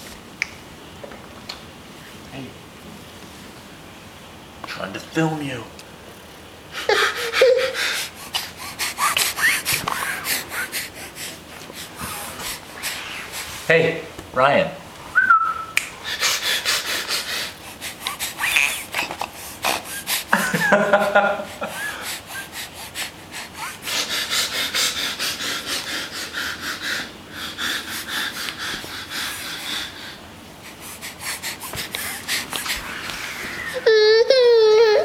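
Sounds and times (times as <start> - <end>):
toddler snorting: 6.8 - 12.7, 16.1 - 20.4, 30.8 - 35.0
toddler squealing: 33.6 - 35.0.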